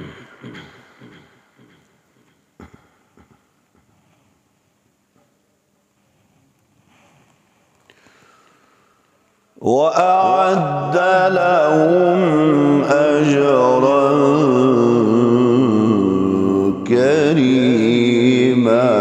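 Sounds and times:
man reciting melodically: 0:09.6 - 0:19.0.

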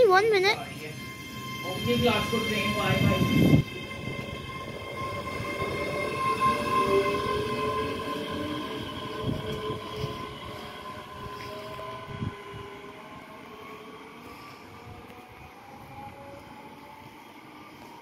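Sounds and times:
train wheel rumble: 0:00.0 - 0:18.0
electric train motor whine: 0:00.2 - 0:17.9.

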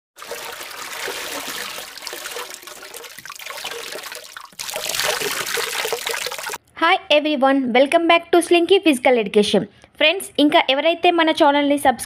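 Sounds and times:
rushing splashing water: 0:00.2 - 0:06.6.

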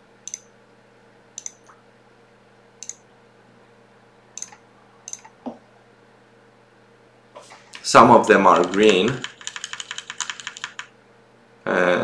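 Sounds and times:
computer mouse clicking: 0:00.2 - 0:00.5, 0:01.4 - 0:01.8, 0:04.4 - 0:05.3, 0:08.5 - 0:10.9.

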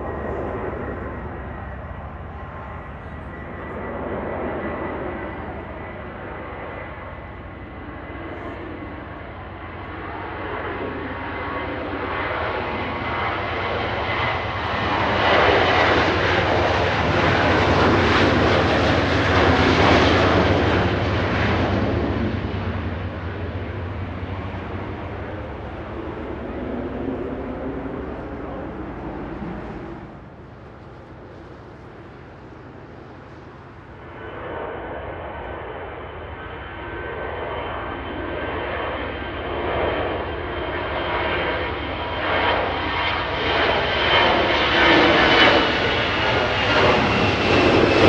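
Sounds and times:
jet airliner flying overhead: 0:00.0 - 0:48.0
thin steady whine: 0:22.9 - 0:36.3.

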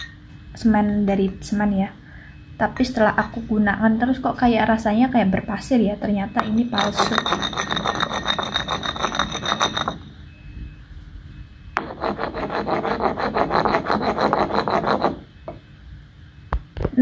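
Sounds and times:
stone pestle scraping in mortar: 0:06.4 - 0:10.1, 0:11.8 - 0:15.3.

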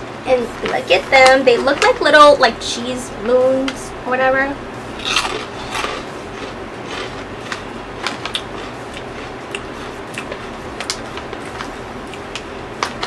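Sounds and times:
faint room hum: 0:00.0 - 0:13.0
crunchy food being chewed: 0:05.0 - 0:13.0.

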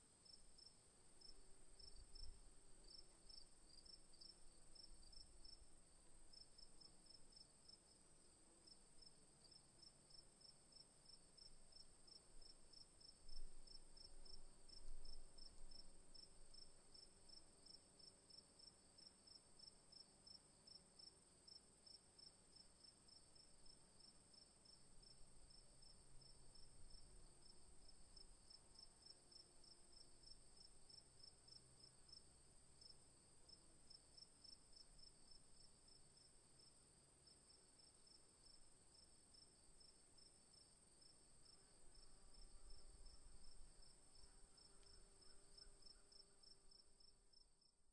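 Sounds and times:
crickets chirping: 0:00.2 - 0:07.8, 0:11.4 - 0:47.7.

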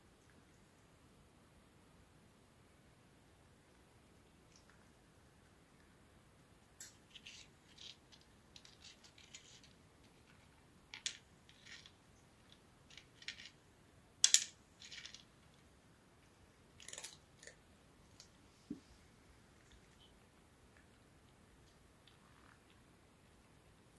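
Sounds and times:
cat crunching dry kibble: 0:16.8 - 0:18.3.

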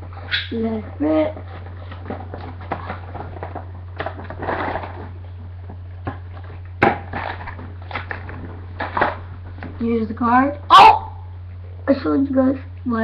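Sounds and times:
plastic packaging crinkling: 0:01.3 - 0:09.8.

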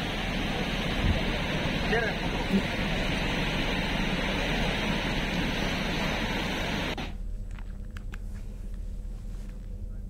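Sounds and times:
river roaring: 0:00.0 - 0:07.1.

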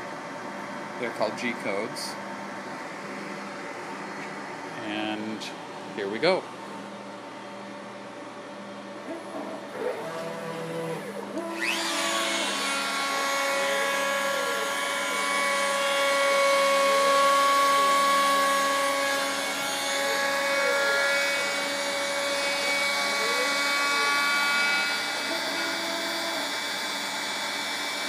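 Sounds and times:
router whining cutting wood: 0:09.6 - 0:28.0
stepper motors whining: 0:09.8 - 0:27.1.

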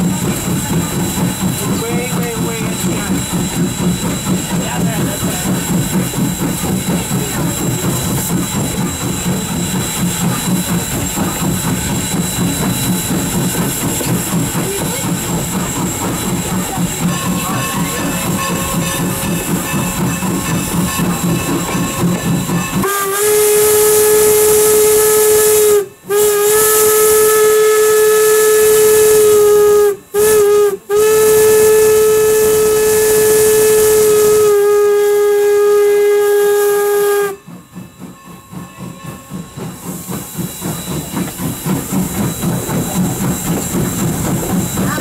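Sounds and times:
locomotive exhaust chuffs: 0:00.0 - 0:45.0
steam whistle blasts: 0:15.6 - 0:37.5.

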